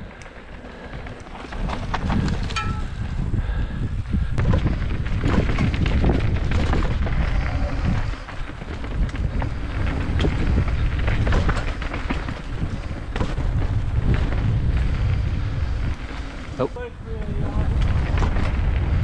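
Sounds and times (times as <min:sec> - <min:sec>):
wind buffeting microphone: 0:00.0 - 0:19.0
knocks and rattles: 0:01.5 - 0:03.0.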